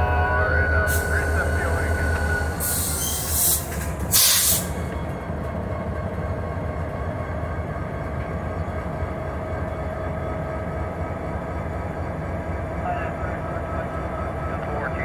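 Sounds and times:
diesel locomotive rumbling by: 0.0s - 15.0s
short loud hisses: 3.4s - 4.7s.

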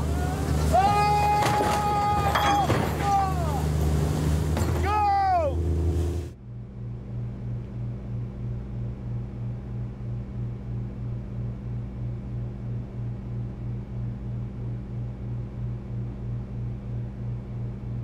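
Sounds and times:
boat engine throbbing: 0.0s - 18.0s
man shouting: 0.2s - 3.7s, 4.8s - 5.6s.

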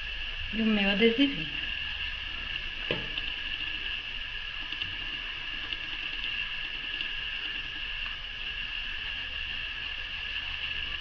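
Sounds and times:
high-pitched hiss: 0.0s - 11.0s.

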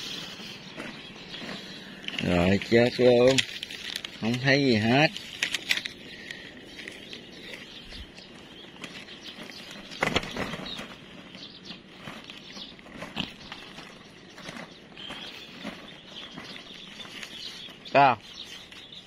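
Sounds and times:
outdoor background noise: 0.0s - 19.0s
rustling and handling: 0.0s - 19.0s.

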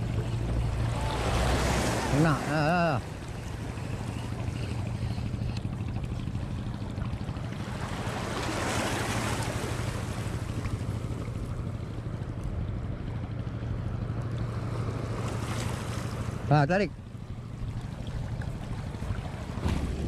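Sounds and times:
boat engine drone: 0.0s - 20.0s
water noise: 0.0s - 20.0s
wind: 0.0s - 20.0s.

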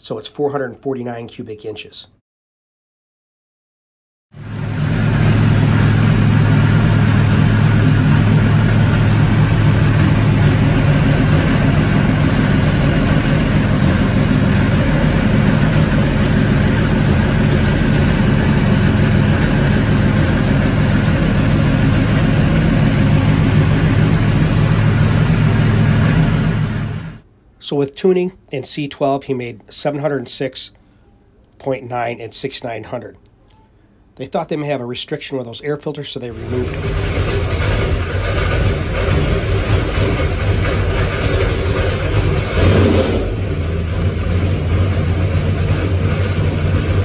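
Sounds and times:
engine running loudly and steadily: 4.4s - 27.2s, 36.3s - 47.0s.

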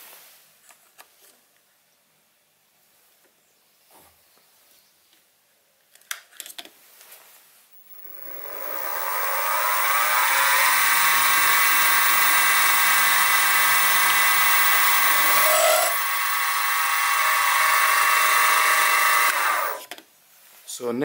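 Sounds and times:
drilling into metal: 7.8s - 19.9s
spindle motor whine: 7.8s - 19.9s.

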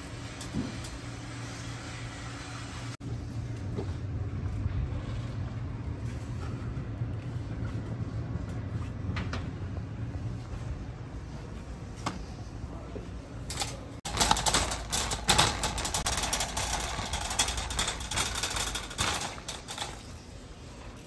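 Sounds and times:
shopping cart rattling on tiles: 13.5s - 21.0s.

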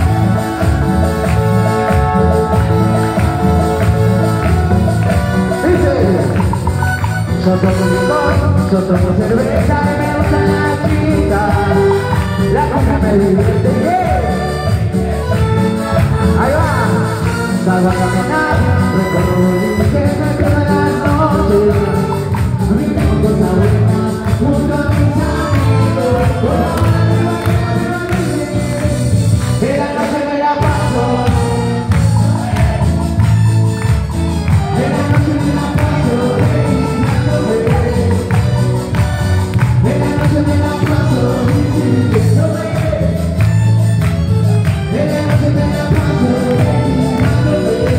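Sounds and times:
latin dance music: 0.0s - 47.9s.

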